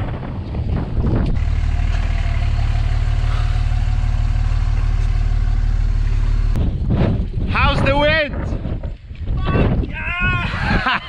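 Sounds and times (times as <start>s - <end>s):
truck engine idling: 1.1s - 6.6s.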